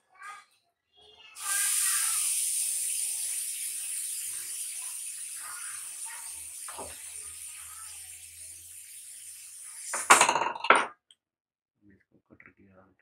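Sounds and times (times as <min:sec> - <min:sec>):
loud steady hiss: 0:01.4 - 0:10.1.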